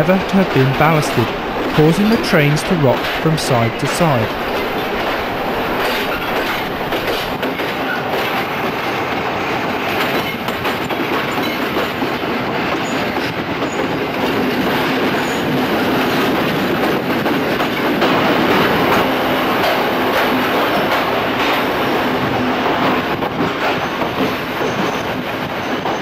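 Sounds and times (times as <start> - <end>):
train rumble: 0.0 - 26.0
wheels clattering over rail joints: 0.0 - 26.0.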